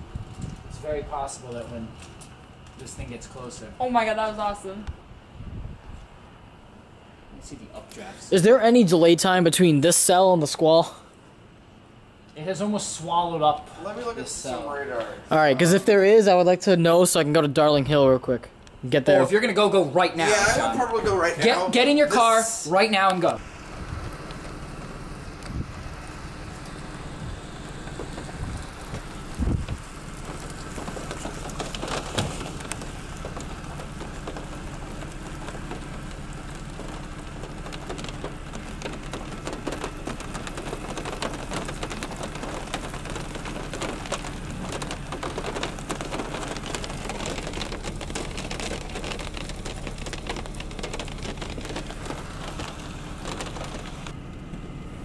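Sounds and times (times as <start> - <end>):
rain falling: 7.4 - 11.2, 12.6 - 18.0, 19.2 - 55.0
low thumps: 23.4 - 54.8.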